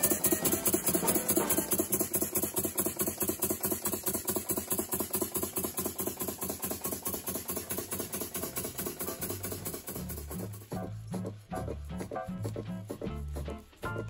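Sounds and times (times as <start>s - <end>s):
toy steam engine beating: 0.0s - 14.0s.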